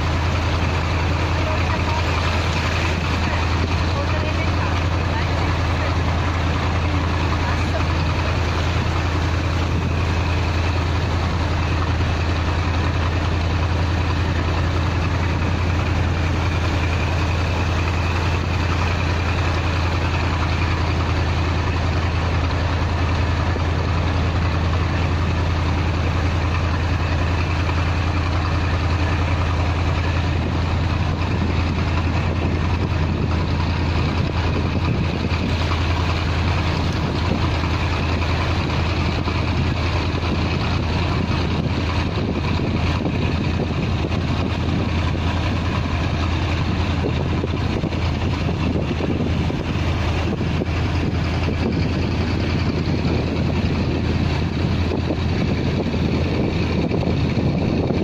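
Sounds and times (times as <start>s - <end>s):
boat engine drone: 0.0s - 58.0s
water rushing along hull: 0.0s - 58.0s.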